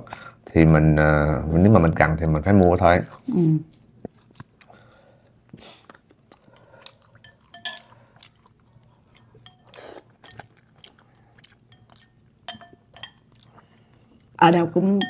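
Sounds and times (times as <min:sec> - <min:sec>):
soft chewing: 0:02.4 - 0:14.4
utensils clinking on dishes: 0:07.2 - 0:08.0, 0:09.4 - 0:10.6, 0:11.7 - 0:13.5.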